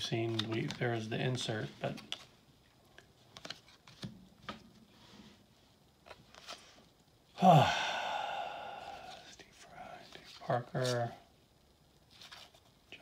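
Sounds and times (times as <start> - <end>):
sigh-like voice: 7.4 - 9.4.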